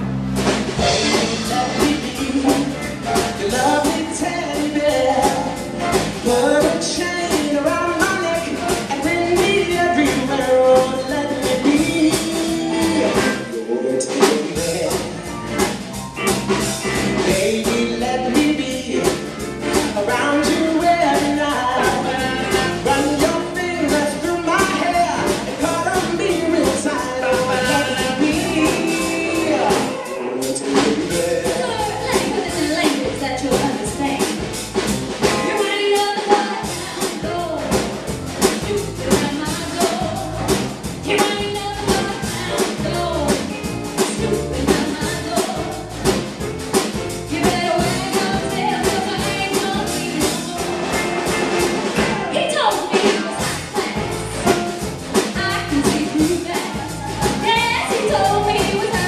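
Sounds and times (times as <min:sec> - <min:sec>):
live rock and roll band: 0:00.0 - 0:59.0
people singing: 0:20.0 - 0:33.7, 0:47.4 - 0:59.0.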